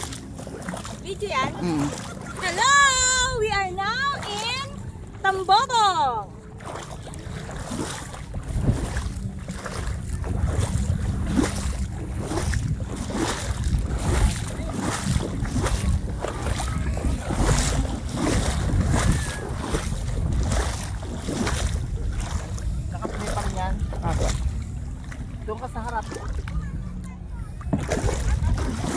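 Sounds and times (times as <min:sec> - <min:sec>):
water sloshing around paddles: 0:00.0 - 0:28.9
wind rumbling on microphone: 0:06.4 - 0:28.9
short splashes or knocks: 0:06.6 - 0:26.6, 0:27.6 - 0:28.9.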